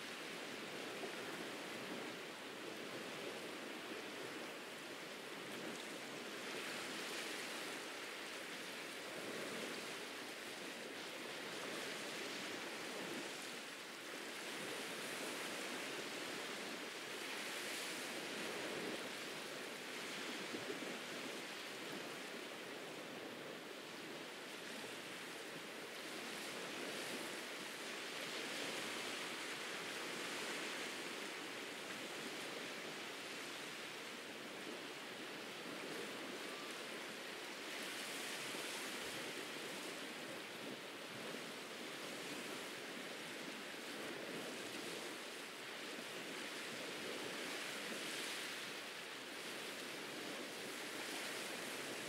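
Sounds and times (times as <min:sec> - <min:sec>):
ocean waves washing onto beach: 0:00.0 - 0:52.0.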